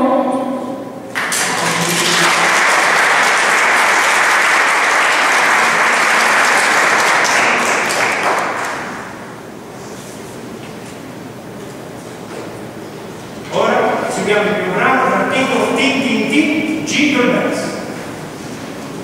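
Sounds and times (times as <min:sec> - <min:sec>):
audience applause: 0:01.1 - 0:09.4.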